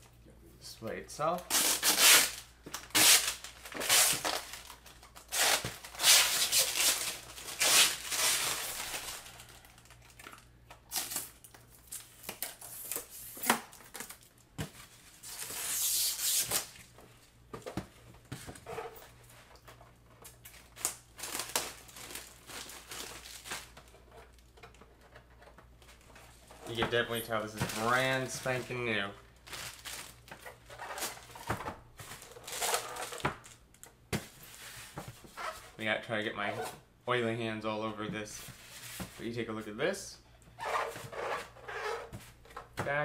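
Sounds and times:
plastic bag crinkling: 0:01.6 - 0:12.9, 0:20.3 - 0:24.5, 0:26.7 - 0:31.4.

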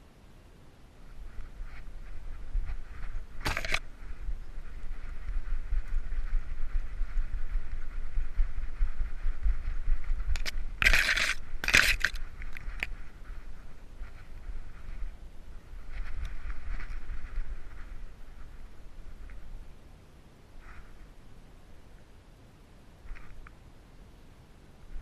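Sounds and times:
brush scraping camera housing: 0:03.4 - 0:03.8, 0:10.4 - 0:12.9
camera housing rubbing and thudding: 0:03.4 - 0:03.9, 0:10.3 - 0:12.9.

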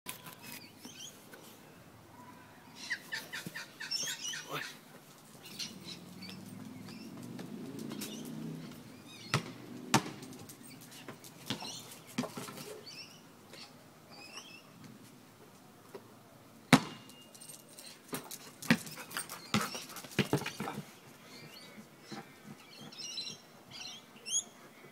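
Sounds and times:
birds chirping: 0:02.2 - 0:14.8, 0:18.9 - 0:24.9.

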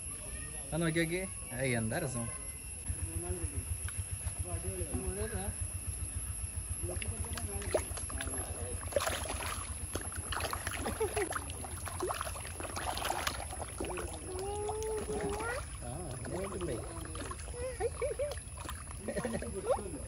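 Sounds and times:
fish splashing at surface: 0:06.8 - 0:20.0.

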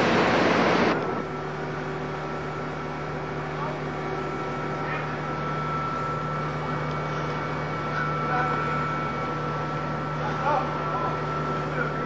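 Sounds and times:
water wash: 0:00.0 - 0:01.0
boat engine droning: 0:00.0 - 0:12.0.

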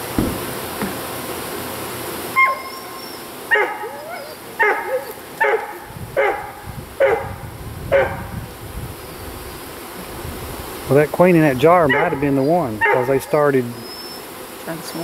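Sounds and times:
honeybee swarm humming: 0:00.0 - 0:15.0
dog barking: 0:02.4 - 0:02.7, 0:03.5 - 0:08.3, 0:11.9 - 0:12.2, 0:12.8 - 0:13.4.

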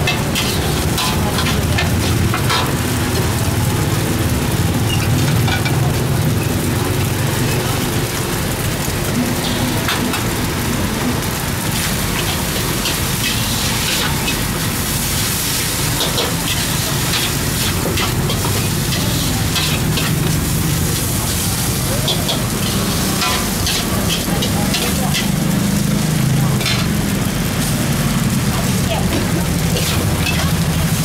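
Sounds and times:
utensils scraping a wok: 0:00.0 - 0:02.9, 0:11.4 - 0:28.1, 0:28.7 - 0:31.0
rice sizzling in a wok: 0:00.0 - 0:31.0.

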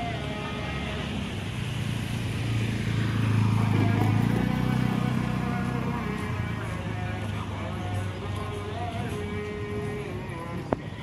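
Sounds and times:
motor scooter engine passing: 0:00.8 - 0:07.1.

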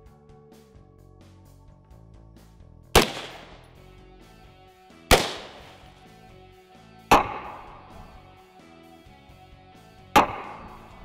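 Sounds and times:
background music: 0:00.0 - 0:11.0
rifle shots echoing: 0:03.0 - 0:03.8, 0:05.1 - 0:06.0.

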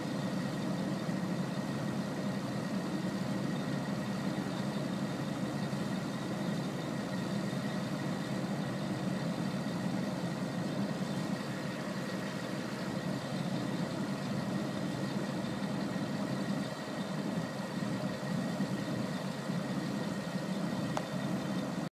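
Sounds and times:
excavator diesel engine idling: 0:00.0 - 0:21.9.

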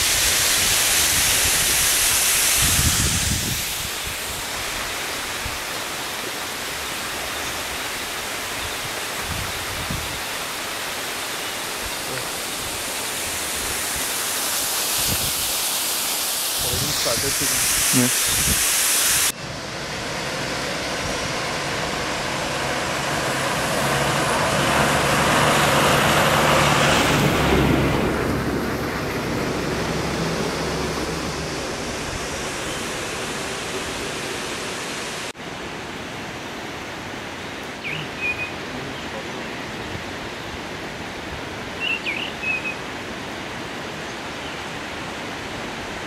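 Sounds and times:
falling water: 0:00.0 - 0:37.8
low engine hum: 0:19.4 - 0:35.3
vehicle driving on wet road: 0:19.4 - 0:35.4
bird chirps: 0:37.8 - 0:39.1, 0:41.8 - 0:42.8.

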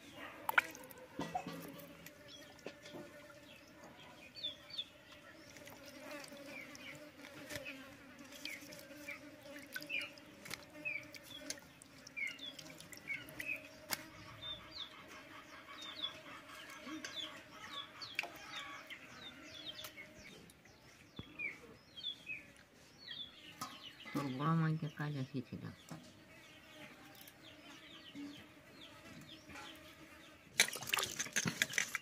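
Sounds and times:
hands washing fish in water: 0:00.0 - 0:03.2, 0:05.4 - 0:14.3, 0:30.6 - 0:32.0
birds chirping: 0:02.2 - 0:32.0.

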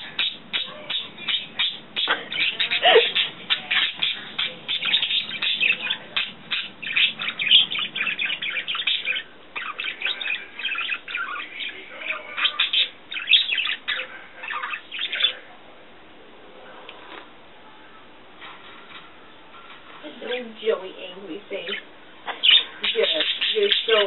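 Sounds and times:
budgerigar warbling: 0:00.0 - 0:15.4, 0:21.7 - 0:24.0.

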